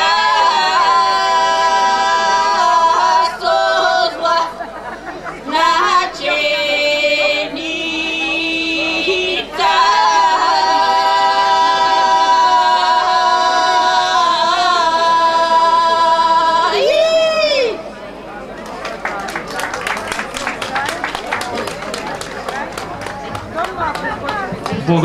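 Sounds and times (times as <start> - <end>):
women singing in harmony: 0.0 - 17.8.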